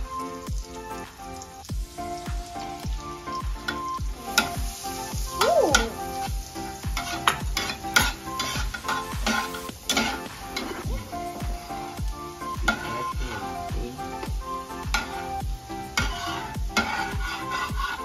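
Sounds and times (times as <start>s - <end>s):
background music with beat: 0.0s - 18.0s
garlic sizzling in butter: 0.0s - 18.0s
spatula scraping a pan: 3.6s - 6.0s, 6.6s - 10.9s, 12.6s - 13.3s, 14.9s - 18.0s.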